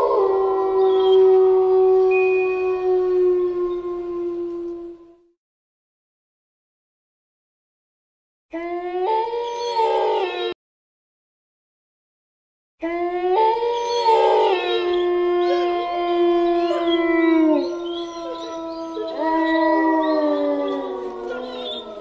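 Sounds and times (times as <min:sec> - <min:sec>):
dogs howling together: 0:00.0 - 0:05.1, 0:12.9 - 0:22.0.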